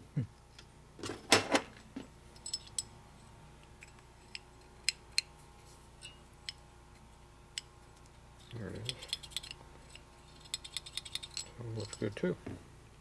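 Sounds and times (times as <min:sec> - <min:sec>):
small metal parts clinking: 0:02.3 - 0:02.9, 0:08.4 - 0:12.3.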